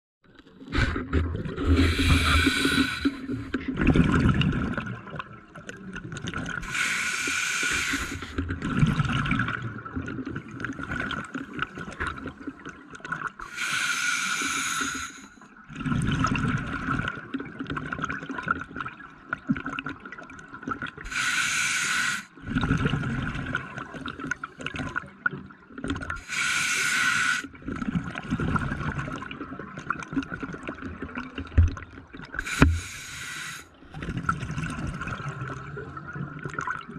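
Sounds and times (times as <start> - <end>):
exhaust bubbles underwater: 0.6 - 6.8, 7.7 - 13.5, 15.6 - 21.1, 22.4 - 26.3, 27.5 - 36.9
regulator hiss on inhale: 1.8 - 3.4, 6.6 - 8.4, 13.4 - 15.4, 21.1 - 22.4, 26.2 - 27.5, 32.4 - 33.7.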